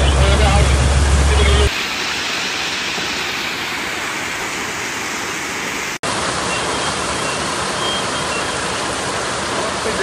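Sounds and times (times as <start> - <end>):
heavy rain on flooded street: 6.0 - 10.0.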